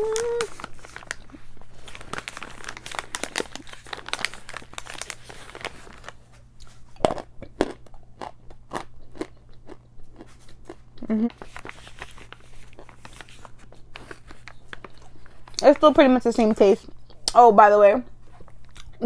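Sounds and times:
chalk being chewed crunching: 6.6s - 15.6s.

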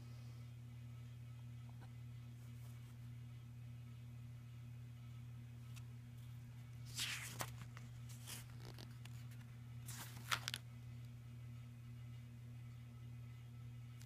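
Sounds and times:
steady low hum: 0.0s - 14.0s
rustling scraping handling noises: 6.9s - 10.6s.

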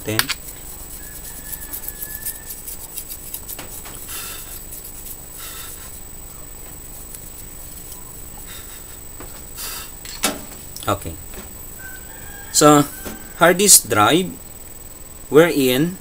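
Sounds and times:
paintbrush scratching hard drive: 0.0s - 10.0s.

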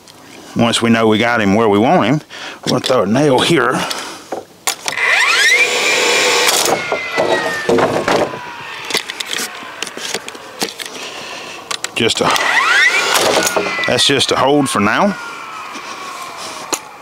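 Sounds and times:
nailer firing clicks: 4.7s - 10.9s, 11.7s - 14.0s
nailer motor whine: 4.9s - 17.0s.

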